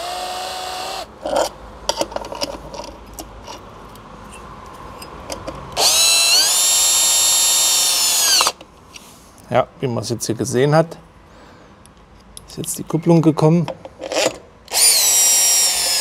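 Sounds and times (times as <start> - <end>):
cordless drill whine: 0.0 - 1.1, 5.8 - 8.6, 14.7 - 16.0.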